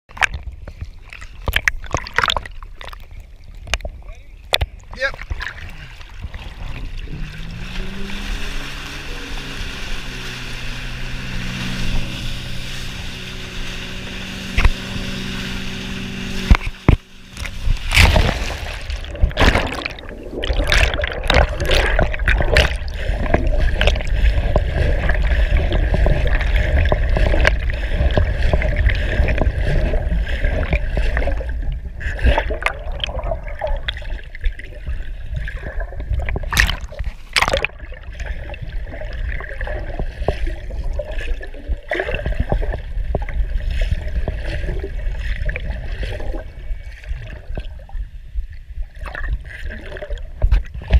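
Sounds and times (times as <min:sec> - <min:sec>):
underwater churning and gurgling: 0:00.1 - 0:50.9
boat engine running: 0:04.4 - 0:50.8
loud splash: 0:05.0 - 0:46.5
wake rushing and spraying: 0:05.4 - 0:34.4
bubbly clicks: 0:16.5 - 0:40.0.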